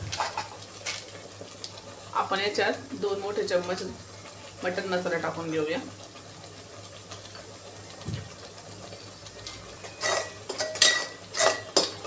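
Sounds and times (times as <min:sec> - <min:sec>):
metal spoon scraping a metal pot: 0:09.8 - 0:12.0.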